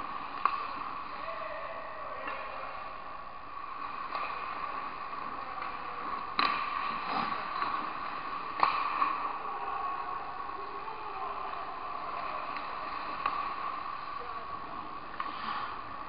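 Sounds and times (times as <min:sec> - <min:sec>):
arena hum and hiss: 0:00.0 - 0:16.0
skates on ice: 0:03.7 - 0:09.4, 0:12.1 - 0:16.0
hockey stick clacks on puck: 0:05.6 - 0:07.8, 0:08.5 - 0:09.2.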